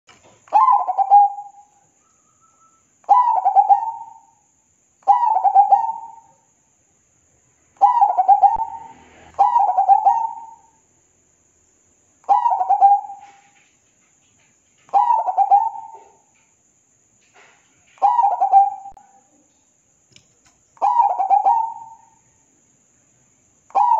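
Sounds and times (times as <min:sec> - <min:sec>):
dove cooing: 0:00.5 - 0:01.6, 0:03.1 - 0:04.3, 0:05.1 - 0:06.2, 0:07.8 - 0:10.7, 0:12.3 - 0:13.6, 0:14.9 - 0:16.3, 0:18.0 - 0:19.0, 0:20.8 - 0:22.1.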